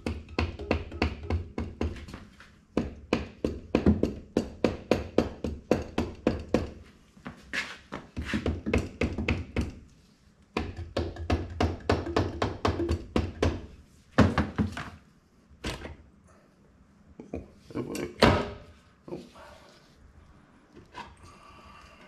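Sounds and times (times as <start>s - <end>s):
hammer tapping on metal: 0.0s - 2.1s, 10.6s - 13.6s.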